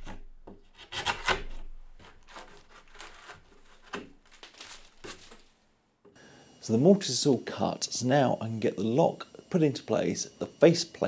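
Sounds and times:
chisel scraping wood: 0.0 - 4.2.

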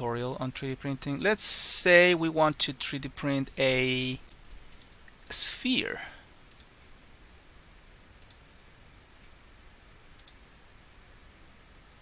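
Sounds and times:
low steady hiss: 0.0 - 12.0
computer mouse clicks: 4.5 - 4.9, 6.5 - 6.7, 8.2 - 9.4, 10.1 - 10.4.

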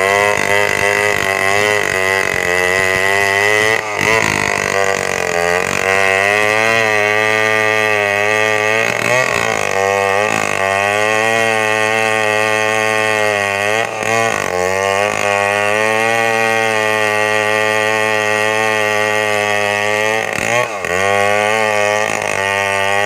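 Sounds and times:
chainsaw cutting log: 0.0 - 23.0.

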